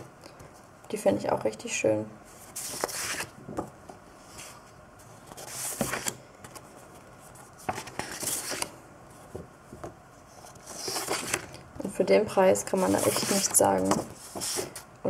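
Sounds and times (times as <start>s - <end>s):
paper sheets swishing: 10.5s - 11.5s, 12.7s - 14.8s.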